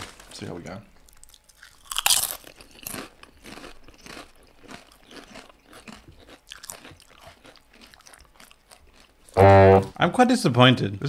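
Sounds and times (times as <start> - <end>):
potato chips crunching when chewed: 1.1 - 9.4.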